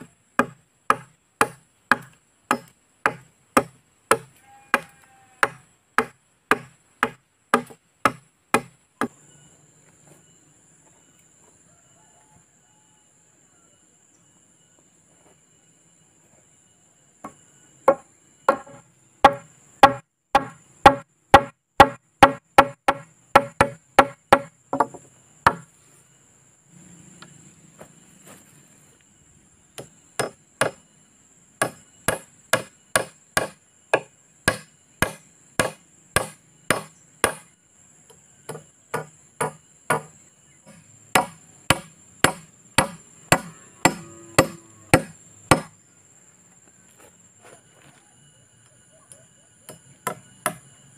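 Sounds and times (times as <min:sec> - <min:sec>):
hatchet chopping wood: 0:00.0 - 0:09.2, 0:17.2 - 0:25.7, 0:29.8 - 0:30.8, 0:31.6 - 0:37.5, 0:38.5 - 0:45.7, 0:49.7 - 0:50.6.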